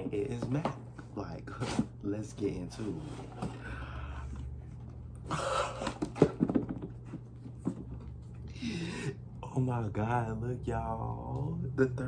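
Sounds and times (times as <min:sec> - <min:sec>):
cardboard scraping: 0:01.5 - 0:03.6.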